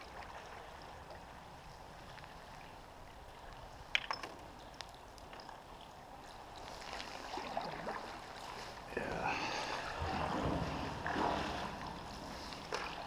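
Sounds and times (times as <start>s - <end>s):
paddle strokes through water: 0.0s - 13.0s
water splashing: 0.0s - 13.0s
water dripping: 9.5s - 13.0s.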